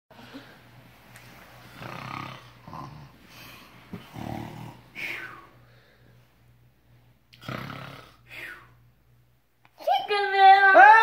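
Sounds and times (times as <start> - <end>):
man snoring: 1.7 - 3.2, 4.1 - 4.8, 7.4 - 8.2.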